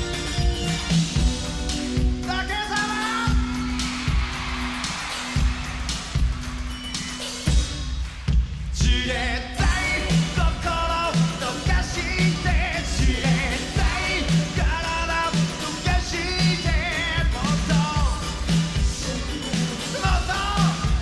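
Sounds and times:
pop-rock band playing: 0:00.0 - 0:21.0
steady drum beat: 0:00.0 - 0:21.0
man singing with vibrato: 0:02.1 - 0:03.9, 0:08.7 - 0:21.0.

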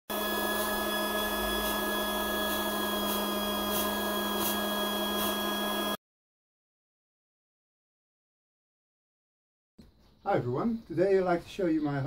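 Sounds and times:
fog machine electric hum: 0:00.1 - 0:06.0.

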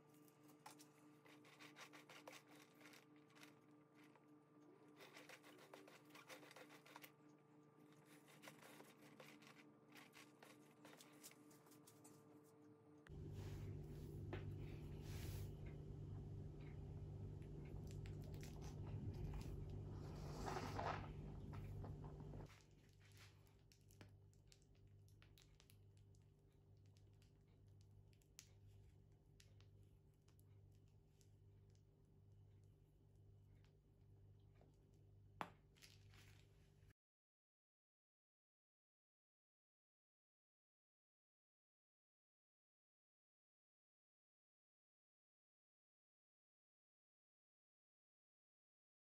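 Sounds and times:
metal spatula scraping frosting: 0:00.0 - 0:12.2, 0:19.0 - 0:21.7
faint steady hum: 0:00.0 - 0:22.9.

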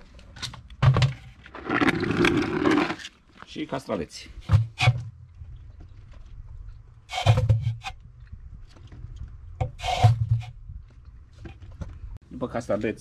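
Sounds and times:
cucumbers scraping and rustling: 0:01.2 - 0:03.8.

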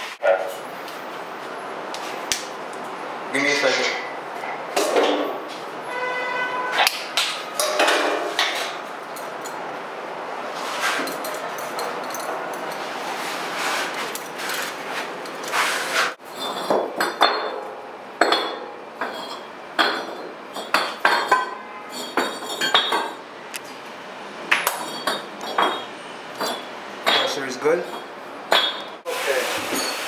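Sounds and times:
metallic clinks and taps: 0:11.0 - 0:12.8, 0:24.6 - 0:28.9.

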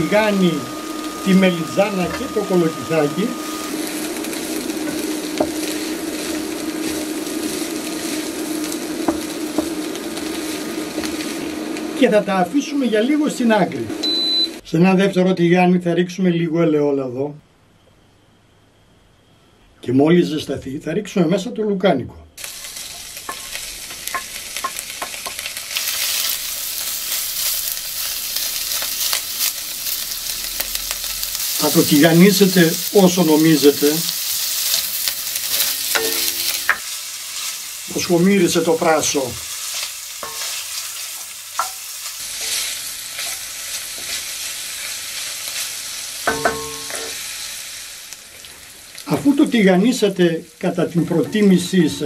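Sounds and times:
sausage sizzling in frying pan: 0:00.0 - 0:14.6, 0:22.4 - 0:52.0
wooden spoon scraping a pan: 0:00.1 - 0:11.6, 0:22.5 - 0:26.4, 0:39.5 - 0:44.4.

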